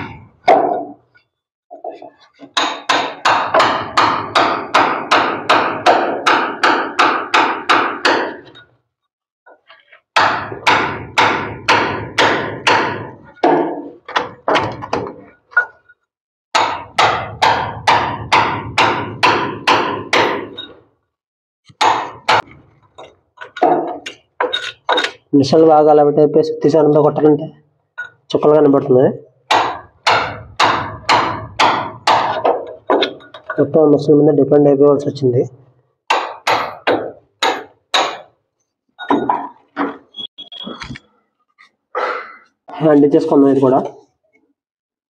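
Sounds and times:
hammer striking chisel: 0:00.0 - 0:08.8, 0:10.2 - 0:20.9, 0:21.7 - 0:25.3, 0:27.9 - 0:28.3, 0:29.4 - 0:33.8, 0:36.0 - 0:38.4, 0:39.0 - 0:41.0.

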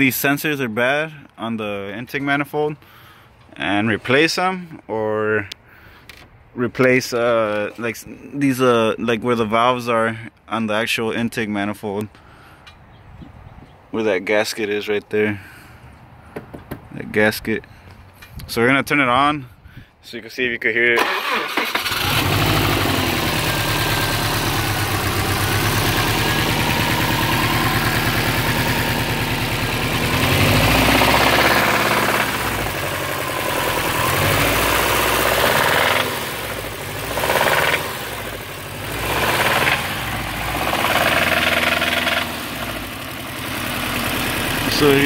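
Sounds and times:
car engine idling: 0:21.2 - 0:45.0.

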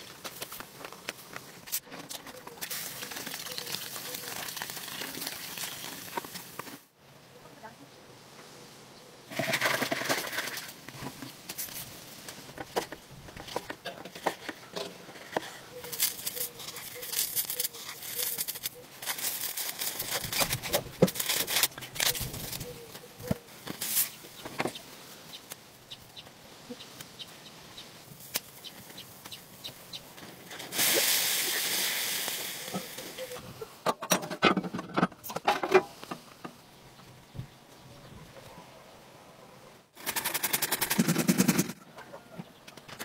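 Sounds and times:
steady hiss: 0:23.5 - 0:33.8.

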